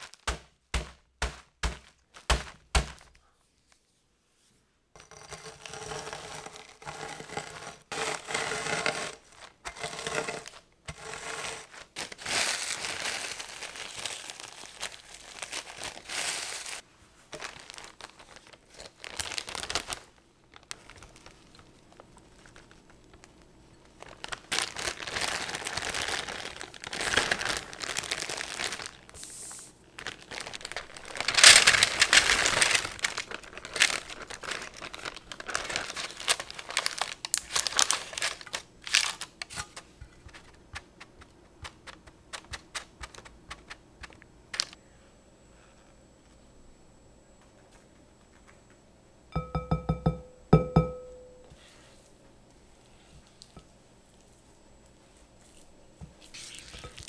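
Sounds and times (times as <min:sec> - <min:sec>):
plastic bag crinkling: 0:00.0 - 0:03.2, 0:11.6 - 0:44.8, 0:55.4 - 0:57.0.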